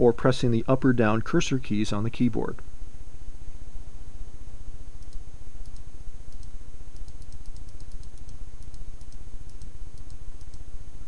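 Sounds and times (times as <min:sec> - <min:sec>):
computer mouse clicks: 0:05.0 - 0:10.6.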